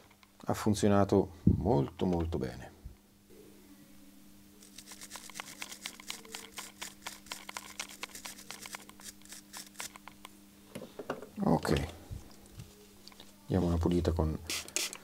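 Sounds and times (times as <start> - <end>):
faint low hum: 0.0 - 14.8
wire brush scrubbing plastic: 4.6 - 10.1.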